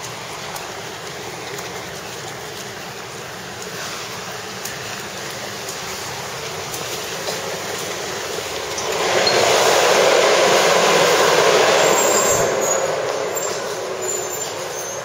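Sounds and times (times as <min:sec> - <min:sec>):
air-curtain blower rushing: 0:08.6 - 0:14.7.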